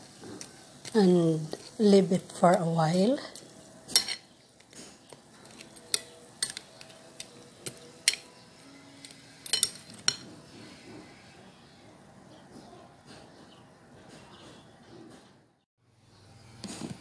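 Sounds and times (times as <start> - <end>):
metal spoon clinking glass bowl: 3.9 - 4.3, 5.4 - 6.9, 7.6 - 8.4, 9.0 - 10.2.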